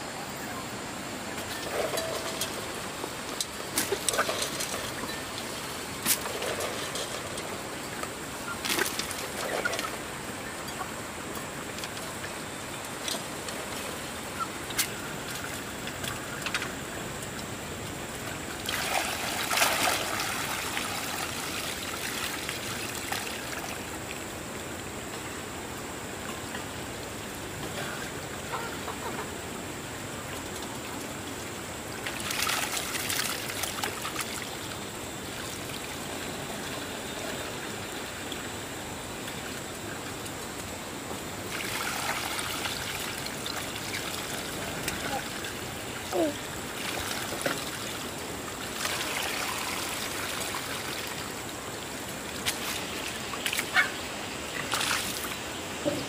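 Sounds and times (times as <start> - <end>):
water trickling and flowing: 0.0 - 56.0.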